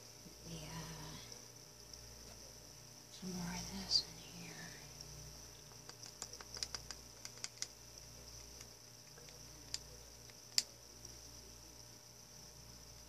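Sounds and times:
faint high hiss: 0:00.0 - 0:13.0
plastic paint cups clicking: 0:05.8 - 0:07.8.

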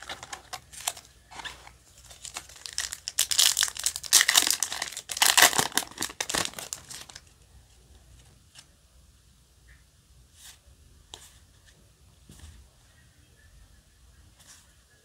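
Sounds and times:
foil wrapper crinkling and tearing: 0:00.0 - 0:07.3.

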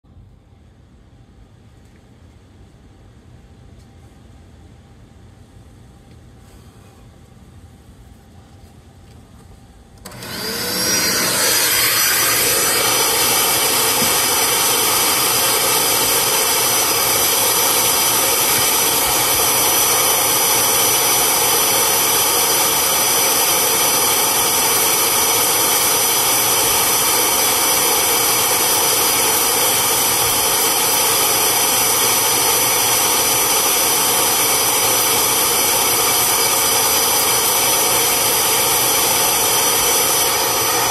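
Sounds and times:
vacuum motor whining: 0:10.0 - 0:40.9.

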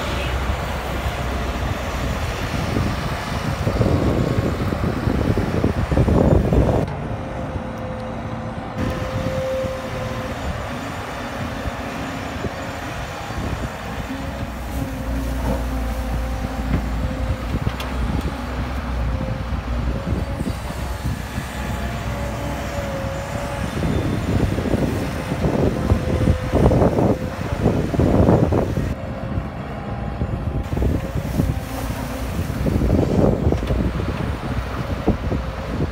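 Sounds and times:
excavator diesel engine rumbling: 0:00.0 - 0:35.9.

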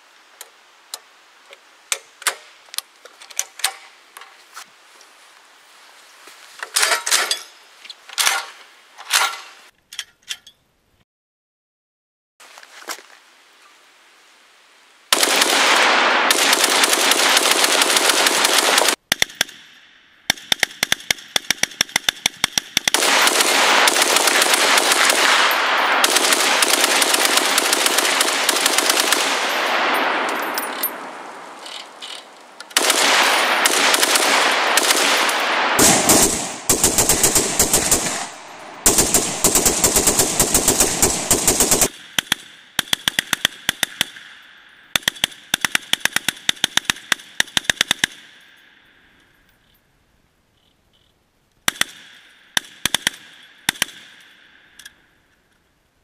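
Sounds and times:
rapid gunfire: 0:15.1 - 0:19.6, 0:20.3 - 0:30.0, 0:32.8 - 0:44.2.

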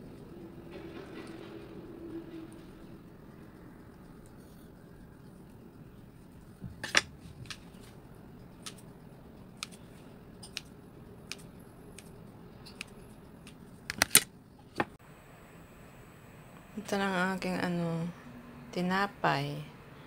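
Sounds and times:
scissors snipping dough: 0:09.6 - 0:09.8, 0:10.4 - 0:10.7, 0:11.3 - 0:12.1, 0:12.7 - 0:13.6.

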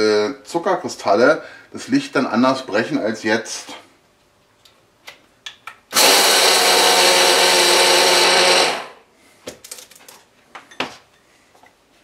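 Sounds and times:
hand blender motor grinding: 0:05.9 - 0:09.0.

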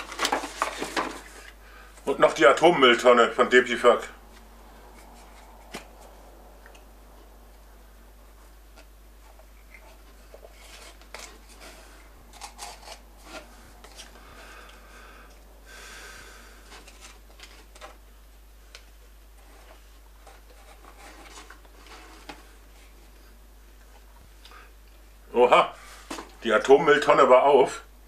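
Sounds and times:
packaging rustling and rubbing: 0:00.0 - 0:01.6, 0:08.6 - 0:14.6, 0:19.2 - 0:23.2.

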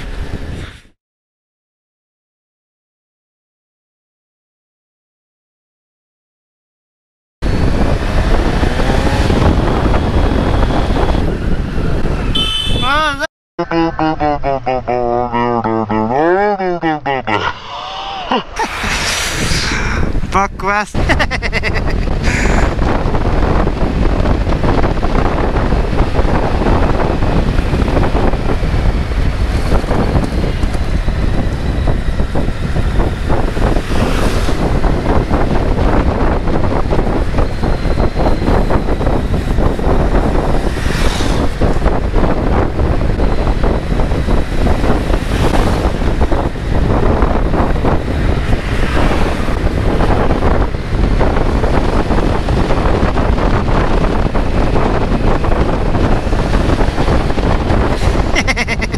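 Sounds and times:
wind rushing over microphone: 0:00.0 - 0:01.0, 0:07.4 - 0:58.9.

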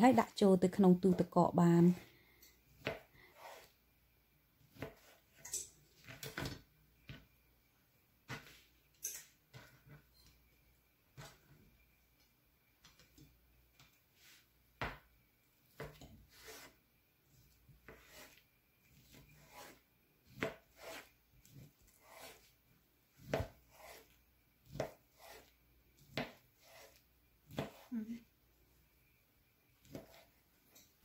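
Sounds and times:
knife rasping through skin: 0:21.9 - 0:22.4.

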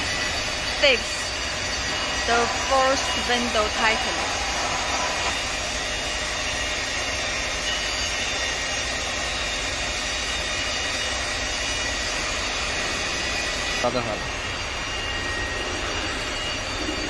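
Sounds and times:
faint high whine: 0:00.0 - 0:17.0
workshop machinery running: 0:00.0 - 0:17.0.

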